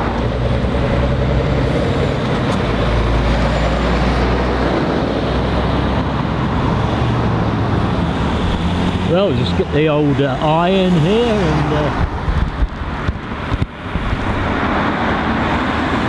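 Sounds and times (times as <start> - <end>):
lorry diesel engine rumbling: 0.0 - 15.9
car passing: 0.0 - 16.0
tyres on road: 0.0 - 16.0.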